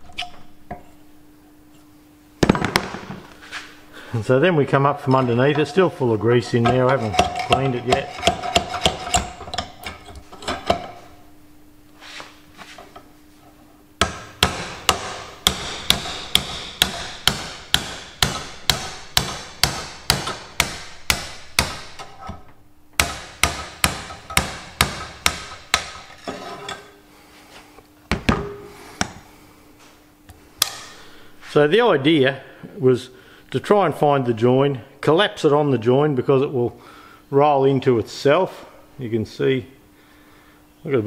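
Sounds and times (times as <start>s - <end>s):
hammer striking steel: 14.0s - 22.1s, 23.0s - 26.1s.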